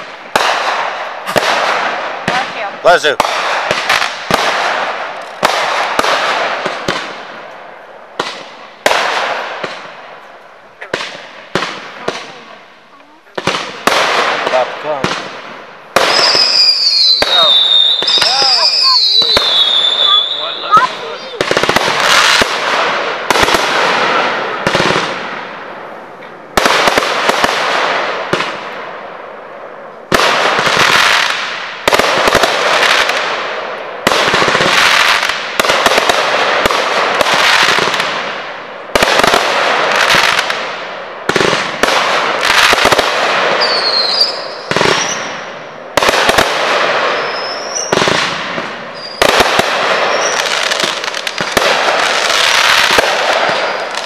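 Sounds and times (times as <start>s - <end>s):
fireworks bursting: 0.0s - 54.0s
fireworks whistling: 13.2s - 28.7s, 41.3s - 54.0s.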